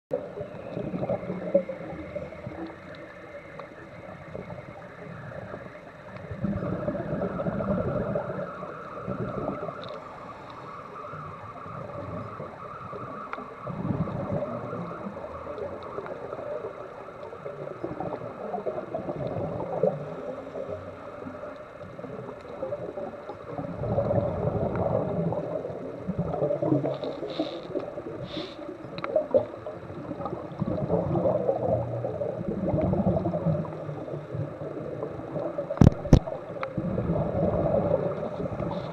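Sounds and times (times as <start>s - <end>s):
bubbles gurgling underwater: 0.1s - 10.2s, 11.0s - 38.9s
diver breathing through regulator: 27.0s - 28.8s.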